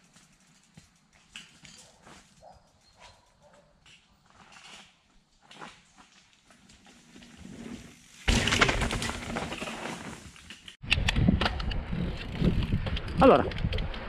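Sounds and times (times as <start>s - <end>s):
bike tyres crunching leaves: 4.2s - 10.7s
bike landing thud: 8.2s - 10.2s.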